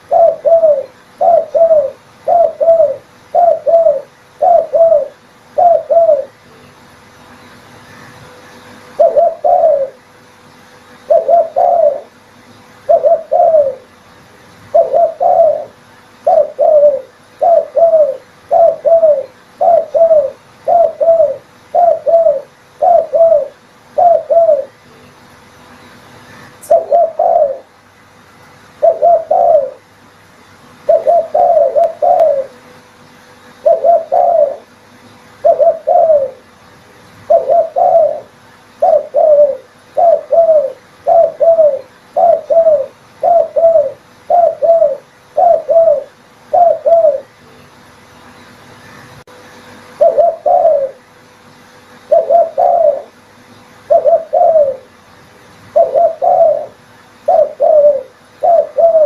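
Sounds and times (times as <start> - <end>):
dove cooing: 0.0 - 6.6, 7.9 - 10.1, 11.0 - 14.0, 14.6 - 25.0, 26.3 - 27.8, 28.8 - 29.9, 30.8 - 32.7, 33.4 - 36.5, 37.2 - 47.4, 49.9 - 51.1, 52.0 - 53.2, 53.8 - 55.0, 55.7 - 59.0.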